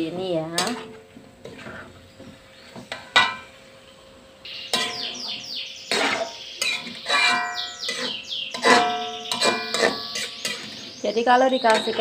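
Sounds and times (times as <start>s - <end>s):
metal spatula scraping wok: 0.5s - 2.1s, 4.7s - 5.1s, 5.9s - 10.9s, 11.6s - 12.0s
songbirds chirping and trilling: 1.5s - 12.0s.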